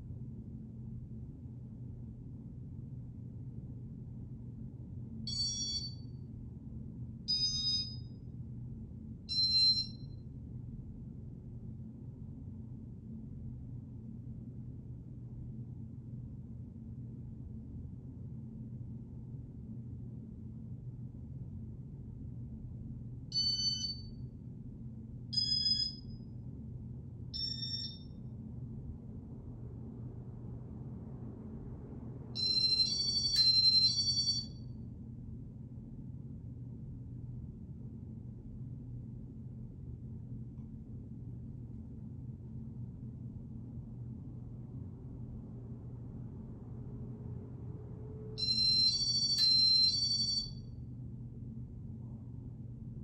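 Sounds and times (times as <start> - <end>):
ceiling fan humming: 0.0 - 53.0
short electronic beeps: 7.3 - 8.0, 25.4 - 26.1, 27.4 - 28.1.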